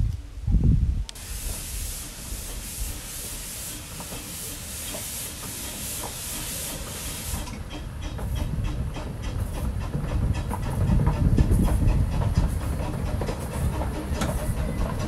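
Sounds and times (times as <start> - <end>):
steam locomotive hissing: 1.1 - 15.0
wheels clicking on rails: 1.1 - 15.0.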